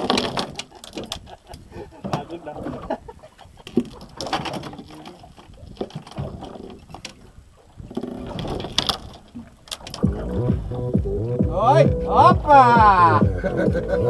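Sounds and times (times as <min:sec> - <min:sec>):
indistinct voices: 0:10.0 - 0:14.0.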